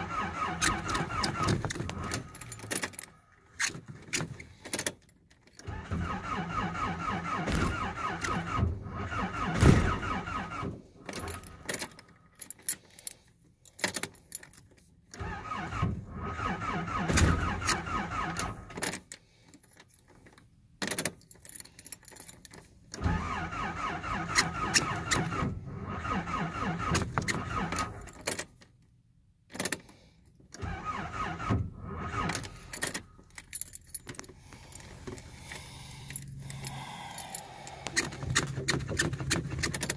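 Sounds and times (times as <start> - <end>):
starter cranking engine: 0.0 - 2.7, 5.6 - 10.7, 15.2 - 18.7, 23.0 - 28.0, 30.6 - 33.1, 34.6 - 39.9.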